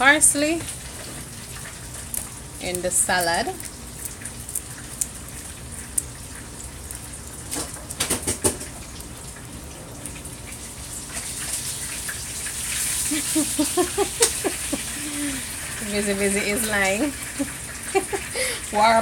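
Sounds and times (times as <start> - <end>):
oil sizzling in a frying pan: 10.2 - 18.8.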